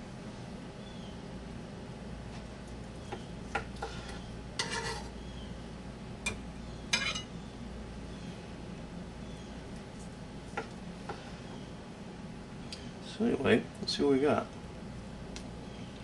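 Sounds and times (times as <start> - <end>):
dishes scraping: 3.6 - 5.1, 6.3 - 7.3.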